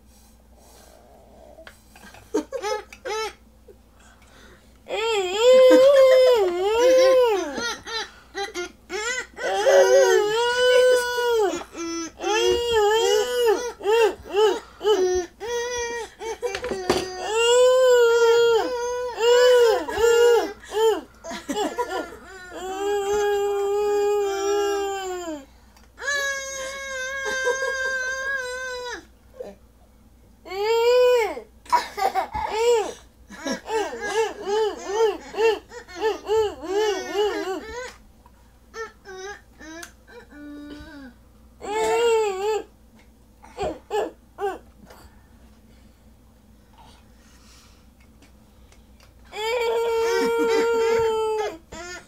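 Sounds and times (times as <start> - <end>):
young children giggling: 2.0 - 3.0.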